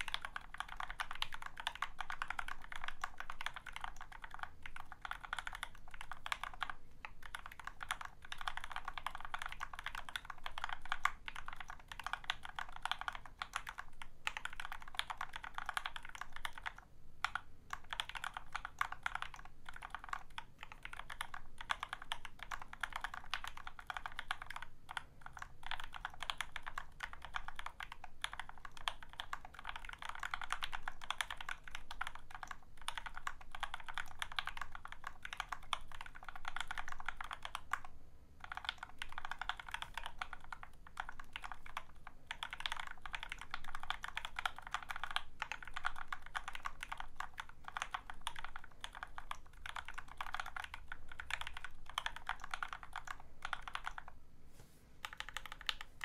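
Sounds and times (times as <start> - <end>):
mechanical keyboard typing: 0.0 - 54.2, 55.0 - 56.0.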